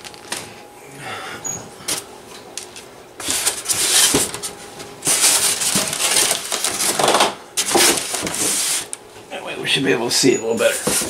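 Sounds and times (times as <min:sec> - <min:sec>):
styrofoam rustling and scraping: 0:03.2 - 0:09.0.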